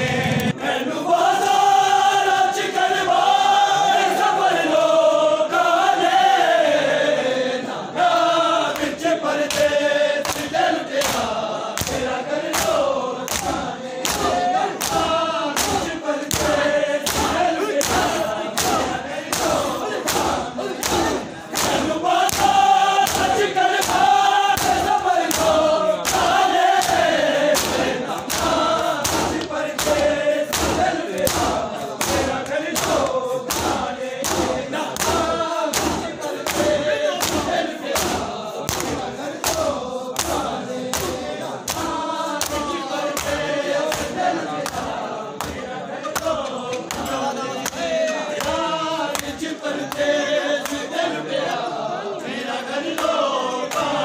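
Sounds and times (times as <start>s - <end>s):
men chanting together: 0.0s - 54.0s
hands striking chests: 9.5s - 45.6s.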